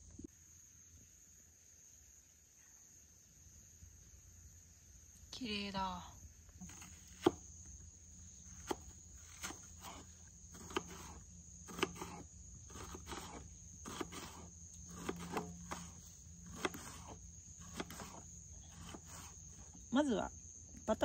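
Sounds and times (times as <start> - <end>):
insects calling: 0.0 - 21.0
knife cutting on wooden board: 6.6 - 7.4, 8.5 - 19.7.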